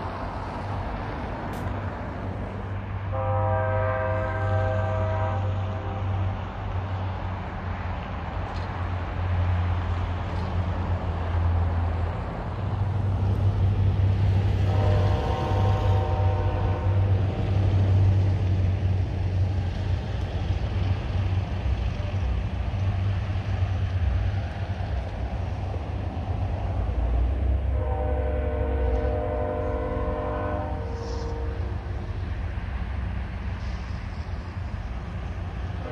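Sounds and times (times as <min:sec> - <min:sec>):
diesel locomotives rumbling: 0:00.0 - 0:35.9
locomotive air horn: 0:03.1 - 0:06.4, 0:14.5 - 0:17.3, 0:27.6 - 0:31.9.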